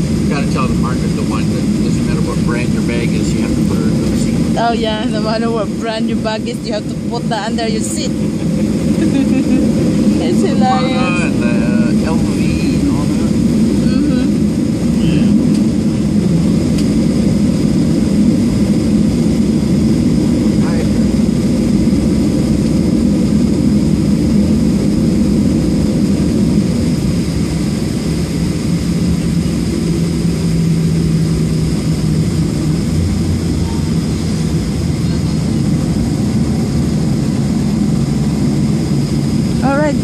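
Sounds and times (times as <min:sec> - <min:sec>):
jet engines rumbling: 0:00.0 - 0:40.0
thin high whine: 0:06.6 - 0:14.3.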